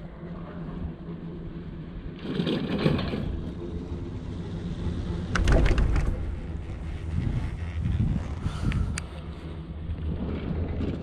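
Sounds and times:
wind rumbling on microphone: 0.0s - 11.0s
rattling and clicking: 5.2s - 9.1s.

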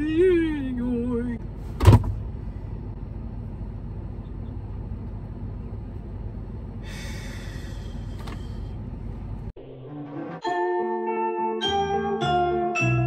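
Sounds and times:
car engine idling: 0.0s - 9.5s
person sighing: 6.8s - 8.5s.

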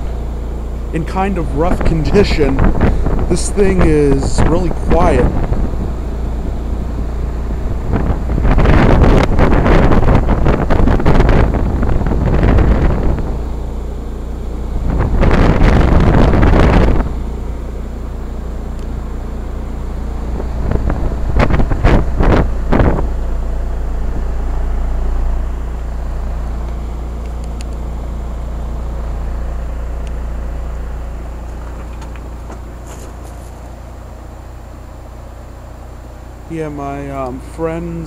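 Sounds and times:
heat pump humming: 0.0s - 38.0s
wind buffeting microphone: 1.6s - 28.2s.

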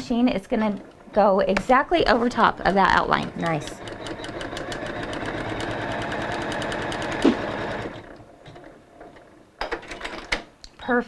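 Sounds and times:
embroidery machine stitching: 0.7s - 9.4s.

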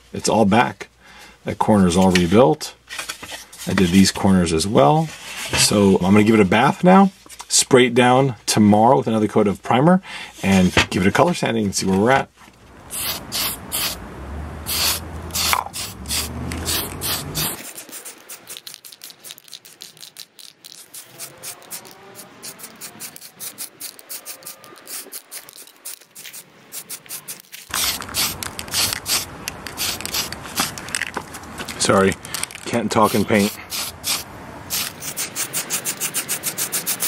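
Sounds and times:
aerosol can rattling when shaken: 12.9s - 14.0s, 14.7s - 37.0s
aerosol can spraying: 12.9s - 14.0s, 14.6s - 19.1s, 19.7s - 30.7s, 32.9s - 37.0s.

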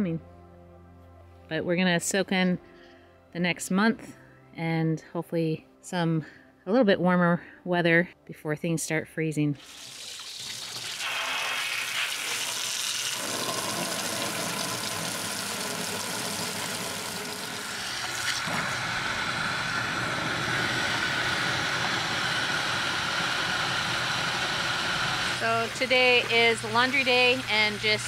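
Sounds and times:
water spraying into metal tub: 9.6s - 20.0s.

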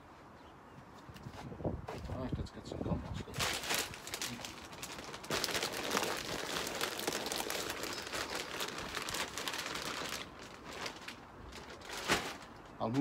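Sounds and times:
plastic bag crinkling: 3.3s - 12.6s
soil pattering onto wood: 3.4s - 13.0s.

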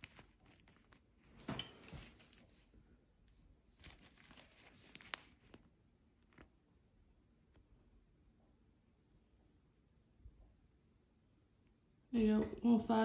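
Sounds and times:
plastic bag crinkling: 0.0s - 2.7s, 3.7s - 6.6s.

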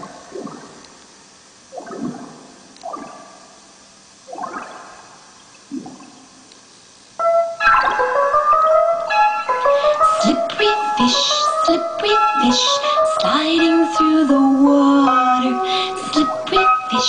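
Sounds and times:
water bubbling and gurgling: 0.0s - 6.5s
music: 7.2s - 17.0s.

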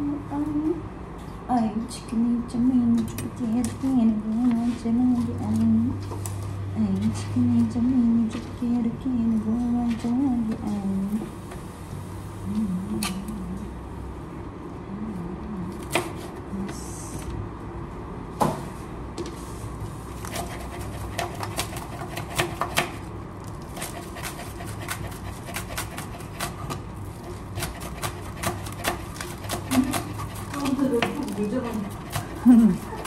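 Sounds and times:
cleaver chopping on cutting board: 20.3s - 23.0s.

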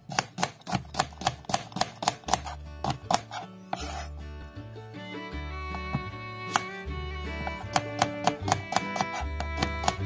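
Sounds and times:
knife chopping on plastic board: 0.0s - 4.1s, 5.7s - 10.0s
background music: 0.7s - 10.0s.

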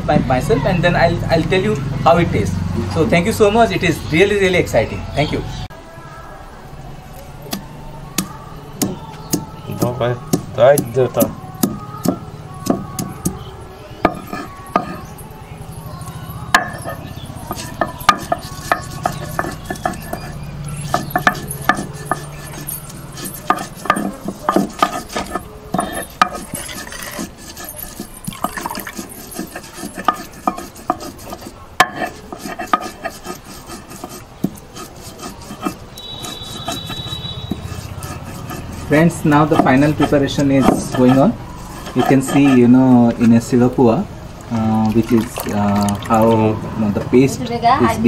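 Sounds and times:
stone pestle knocking: 8.2s - 13.4s, 16.5s - 33.3s, 35.4s - 42.5s
stone grinding and scraping: 14.0s - 15.3s, 16.1s - 43.6s.

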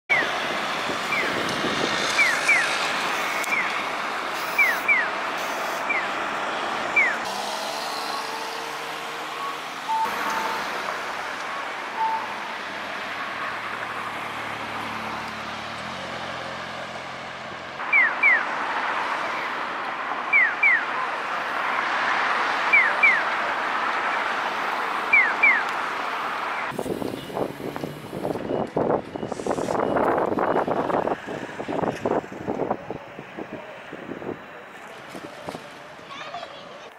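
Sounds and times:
street traffic hum: 0.1s - 36.9s
crossing signal chirps: 1.1s - 1.4s, 2.1s - 3.8s, 4.4s - 6.2s, 6.9s - 7.3s, 9.3s - 10.9s, 11.5s - 12.7s, 17.8s - 18.6s, 20.3s - 20.9s, 22.7s - 23.4s, 25.1s - 25.7s.

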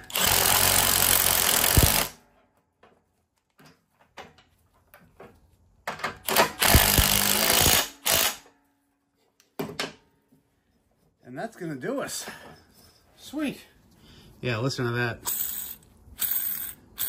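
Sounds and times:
power impact tool hammering: 0.0s - 2.2s, 6.2s - 8.4s.

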